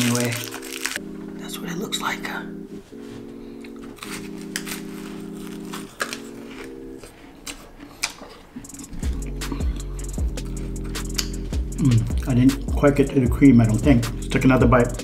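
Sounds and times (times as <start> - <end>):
crunchy pastry bites: 0.0 - 1.0, 5.4 - 6.8
plastic wrapper crinkling: 0.0 - 1.0, 3.8 - 8.4
background music of held chords: 0.0 - 15.0
deep bass line: 9.0 - 15.0.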